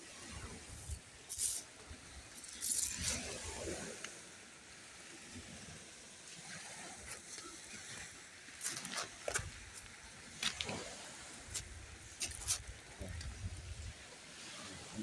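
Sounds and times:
faint steady hiss: 0:00.0 - 0:15.0
footsteps crunching on shells: 0:00.8 - 0:01.7, 0:02.4 - 0:03.2, 0:08.6 - 0:10.7, 0:11.5 - 0:12.7.

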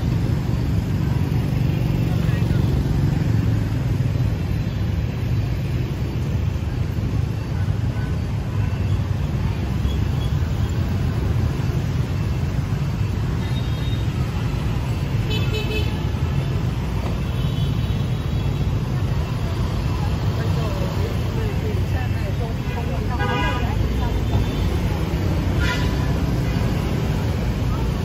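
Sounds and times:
street traffic rumble: 0:00.0 - 0:28.0.

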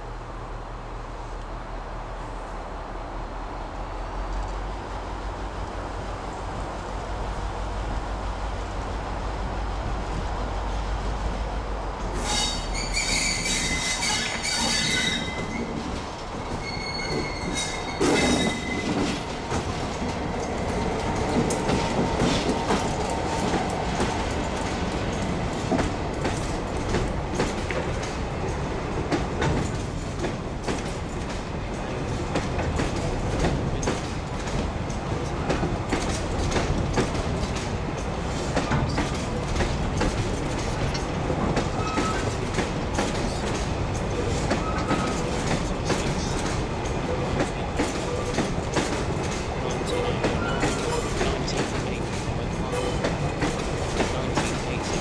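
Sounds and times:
wheels clattering over rail joints: 0:12.0 - 0:55.0
wheels squealing: 0:12.2 - 0:19.2, 0:41.7 - 0:42.4.

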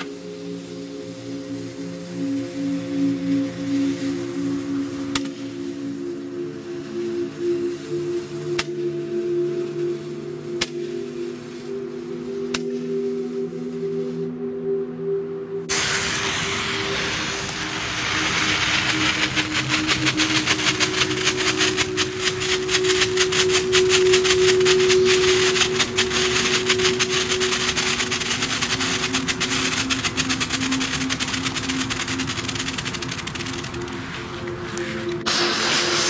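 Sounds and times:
firework hissing and crackling: 0:00.0 - 0:08.4, 0:15.7 - 0:36.0
steady synth music: 0:00.0 - 0:36.0.

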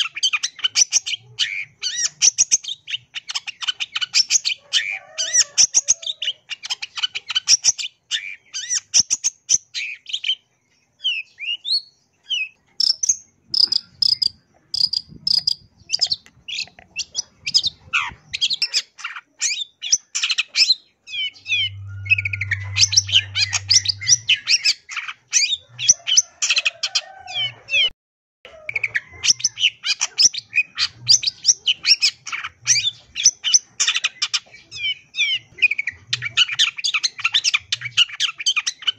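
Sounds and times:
shrike singing chattering song: 0:00.0 - 0:26.8.

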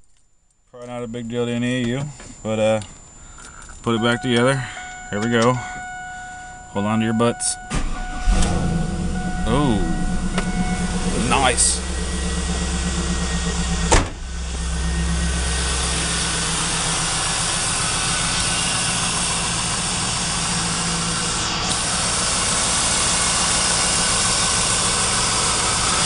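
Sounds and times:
car engine idling: 0:01.2 - 0:26.0
sharp knock: 0:13.8 - 0:14.3.

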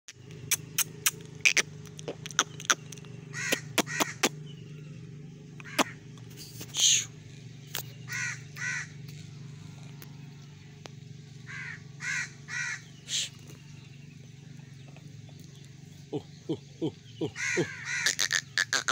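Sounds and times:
steady low hum: 0:00.2 - 0:18.9
harsh caw-like calls: 0:02.4 - 0:04.4, 0:05.6 - 0:06.2, 0:08.0 - 0:13.9, 0:16.1 - 0:18.9.

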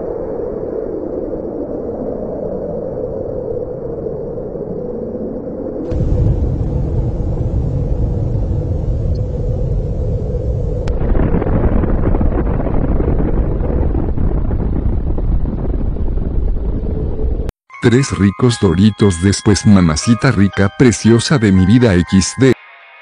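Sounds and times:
explosion deep rumble: 0:05.9 - 0:17.5.

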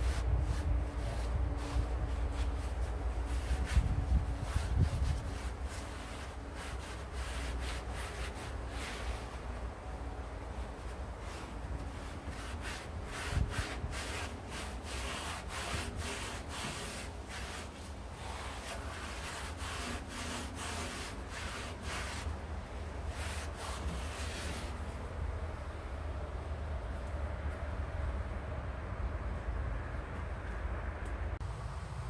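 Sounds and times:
hand rubbing over steel: 0:00.0 - 0:25.2.

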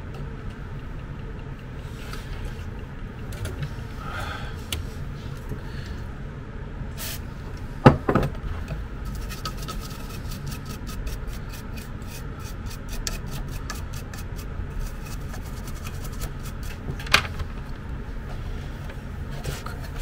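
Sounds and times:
toothbrush scrubbing circuit board: 0:09.1 - 0:16.8.

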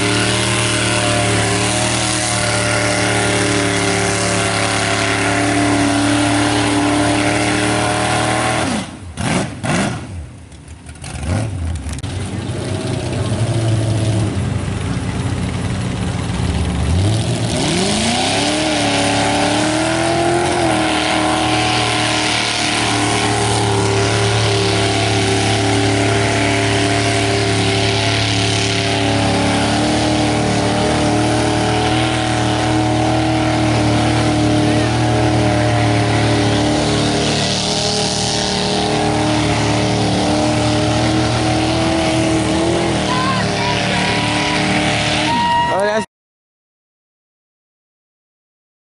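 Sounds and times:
truck engine revving: 0:00.0 - 0:46.0.

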